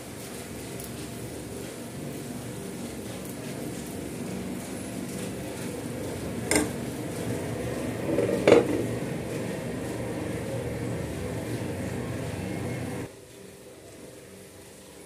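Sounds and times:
cookware clanks: 6.5 - 6.8, 8.1 - 8.9
glass lid set on pan: 6.5 - 6.8, 8.1 - 8.9.

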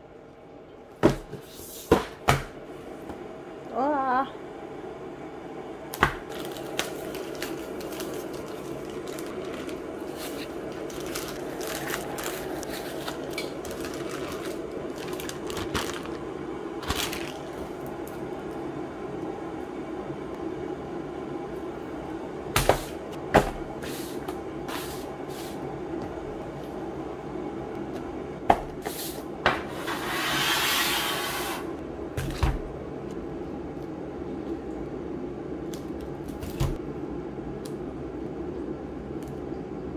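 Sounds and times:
background hum: 0.0 - 39.9
plastic crinkling rustle: 6.3 - 18.1.

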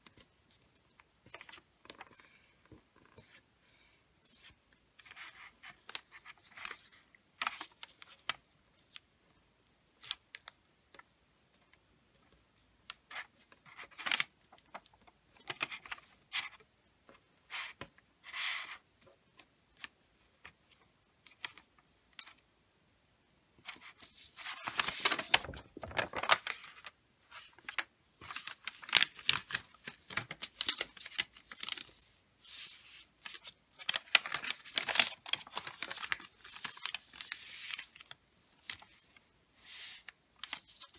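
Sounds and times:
paper crackling: 23.6 - 40.9
wrapping paper rustling: 23.6 - 40.9.

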